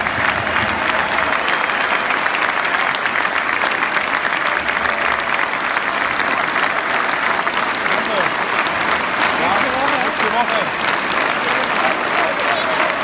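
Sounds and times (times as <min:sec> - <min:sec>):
crowd applauding: 0:00.0 - 0:13.0.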